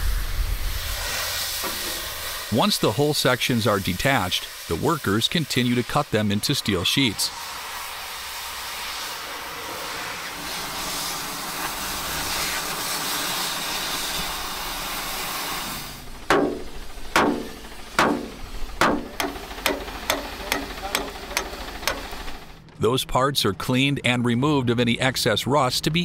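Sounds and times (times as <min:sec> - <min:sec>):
cutting torch hissing: 0:00.0 - 0:22.6
hammer striking steel plate: 0:16.3 - 0:22.1.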